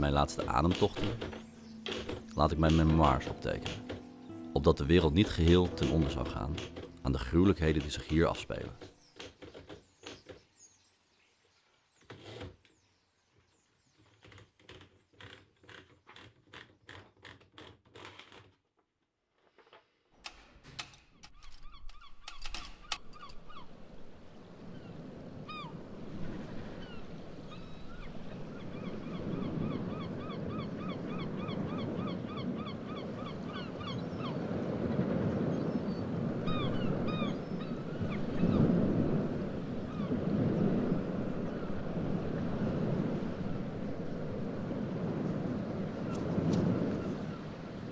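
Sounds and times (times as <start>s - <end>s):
birds calling: 0.0s - 10.8s, 21.4s - 44.5s
wind: 0.0s - 47.9s
water on a beach: 22.9s - 47.9s.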